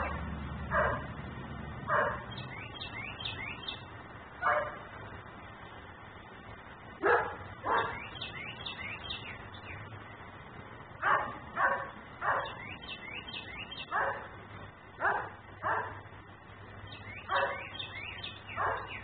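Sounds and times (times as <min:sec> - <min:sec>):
dog barking: 0:00.0 - 0:01.1, 0:01.9 - 0:02.3, 0:04.4 - 0:04.9, 0:07.0 - 0:08.0, 0:11.0 - 0:12.6, 0:13.9 - 0:14.3, 0:15.0 - 0:16.0, 0:17.3 - 0:17.7, 0:18.6 - 0:19.0
birds chirping faintly: 0:01.9 - 0:19.0.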